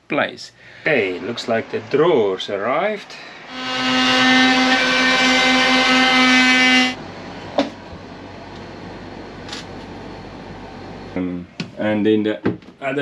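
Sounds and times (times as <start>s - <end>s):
motor humming: 1.0s - 7.0s.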